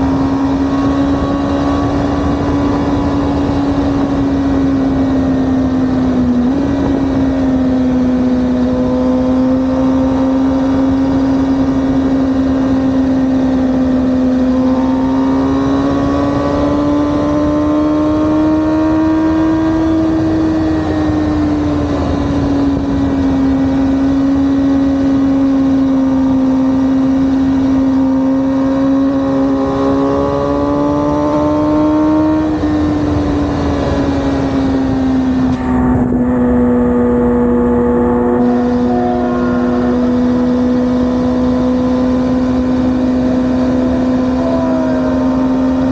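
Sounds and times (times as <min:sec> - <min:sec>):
motorcycle engine cruising: 0:00.0 - 0:45.9
wind and road rush: 0:00.0 - 0:45.9.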